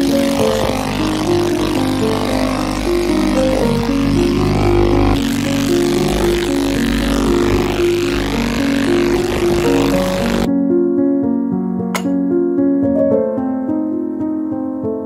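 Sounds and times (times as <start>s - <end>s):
ultrasonic cleaner hiss and hum: 0.0s - 10.5s
background music: 0.0s - 15.0s.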